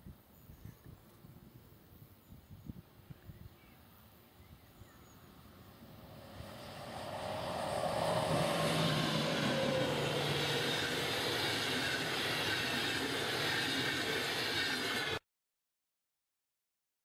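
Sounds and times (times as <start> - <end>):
train wheels rumbling on rails: 5.6 - 15.2.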